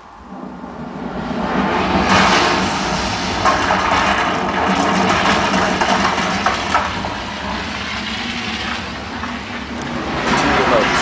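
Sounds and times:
loud movie soundtrack: 0:00.0 - 0:11.0
sharp knocks: 0:03.4 - 0:07.7.

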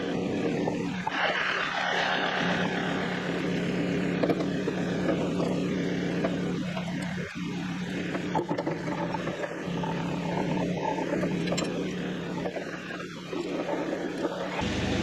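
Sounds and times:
diesel tractor engine idling: 0:14.6 - 0:15.0.

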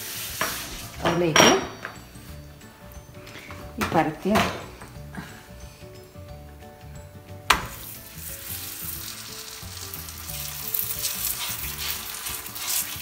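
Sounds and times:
dough sizzling on a hot skillet: 0:00.0 - 0:01.0, 0:07.7 - 0:13.0.

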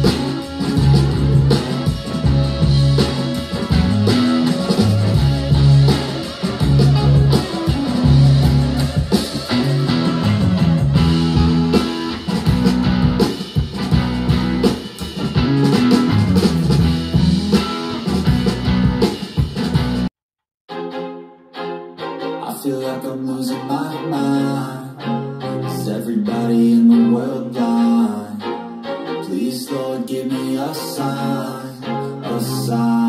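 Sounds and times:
guitar-led music with steady beat: 0:00.0 - 0:20.1, 0:24.3 - 0:29.3.

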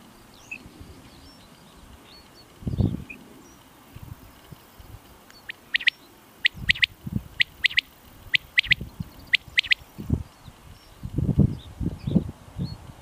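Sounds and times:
quail calling: 0:05.4 - 0:09.8.

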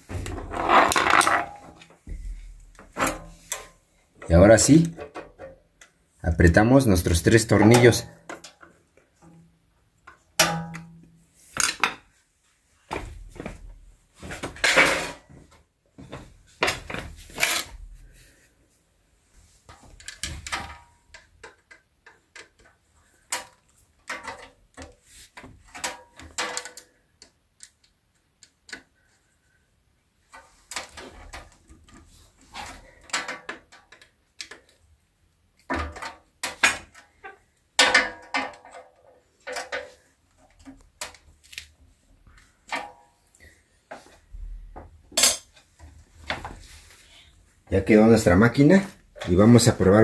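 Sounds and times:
metal parts and tools rattling: 0:00.1 - 0:01.8.

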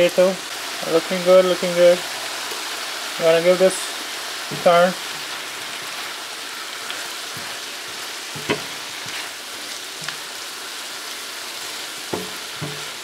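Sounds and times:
vegetables sizzling in a frying pan: 0:00.0 - 0:13.0
spatula scraping and tapping pan: 0:06.9 - 0:09.4, 0:12.1 - 0:13.0.

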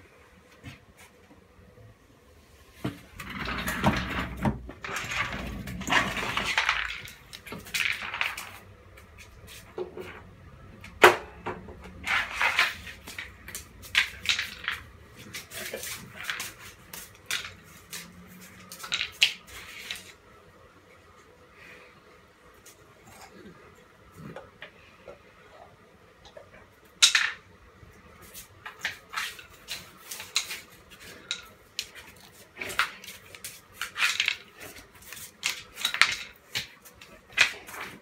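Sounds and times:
puppy scuffling on tile floor: 0:12.0 - 0:20.2, 0:28.2 - 0:38.0.

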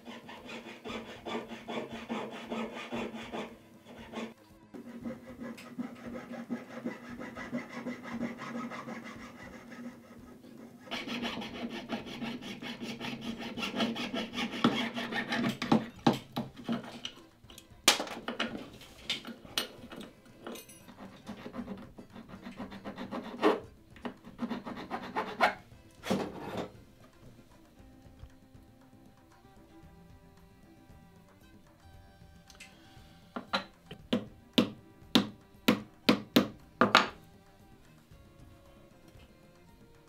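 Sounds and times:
jeweler's saw cutting metal: 0:00.0 - 0:10.2, 0:10.8 - 0:15.9, 0:19.4 - 0:26.7
hand file rasping metal: 0:00.0 - 0:17.3, 0:18.3 - 0:27.2.

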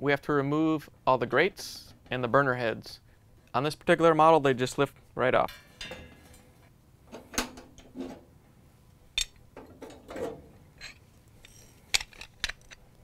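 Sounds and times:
metal burner parts clinking: 0:05.5 - 0:06.5, 0:09.2 - 0:13.0.

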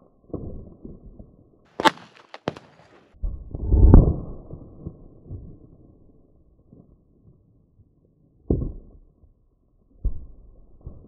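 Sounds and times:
low rumble: 0:03.2 - 0:06.2.

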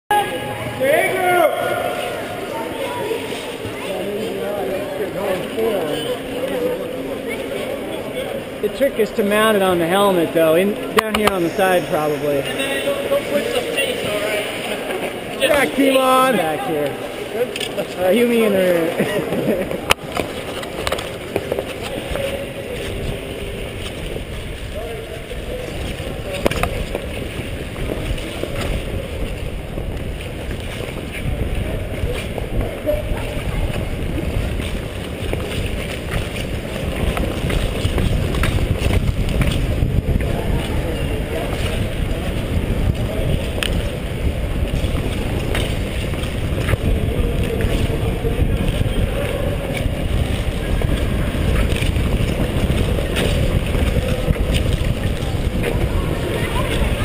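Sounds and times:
skate blades scraping ice: 0:17.3 - 0:57.0
wind rushing over microphone: 0:22.9 - 0:57.0.

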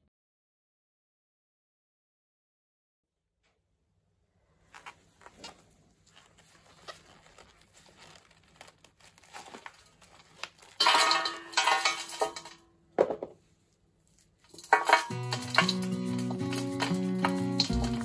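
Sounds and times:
loud rustling and crinkling: 0:04.6 - 0:12.6, 0:13.4 - 0:18.0
plant pot handling rustles: 0:04.7 - 0:11.0.

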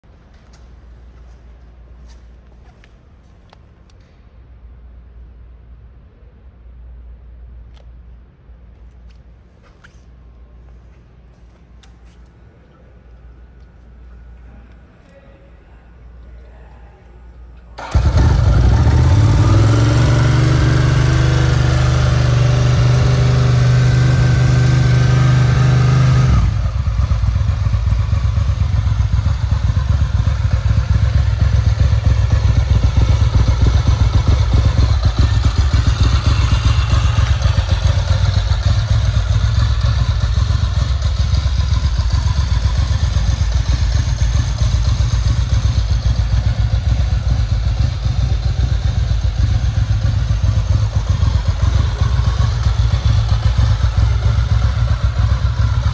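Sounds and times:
motorcycle engine running: 0:17.8 - 0:55.9.

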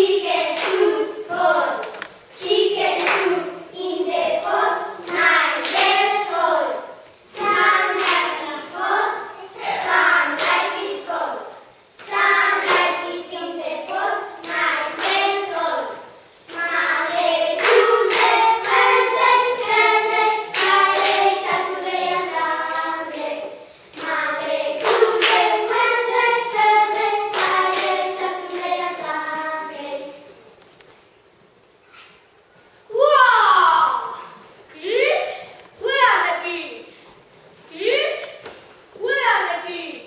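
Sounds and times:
children singing: 0:00.0 - 0:30.3
hand claps: 0:12.0 - 0:13.0, 0:17.6 - 0:18.8, 0:20.5 - 0:21.6, 0:24.8 - 0:25.5.

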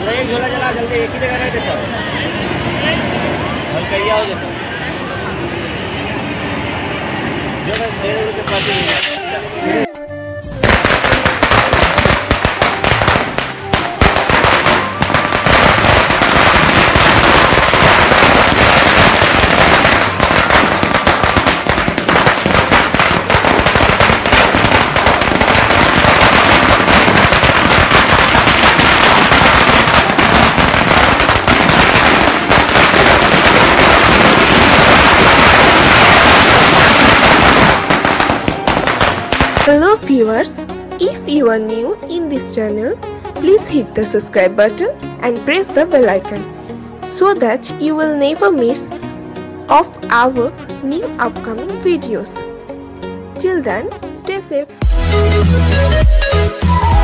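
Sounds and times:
fireworks crackling bangs: 0:00.0 - 0:06.6, 0:07.6 - 0:09.2, 0:10.6 - 0:40.2.

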